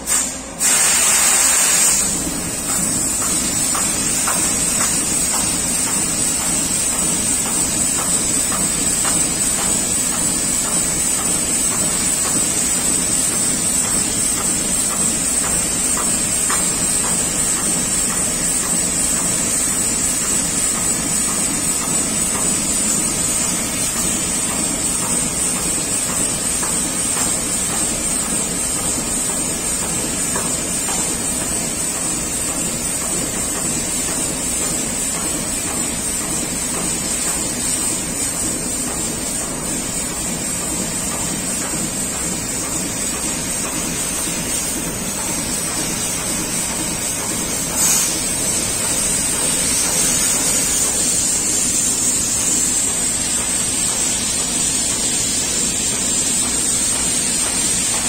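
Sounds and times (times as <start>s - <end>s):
high hiss of gas jet: 0.0s - 2.2s.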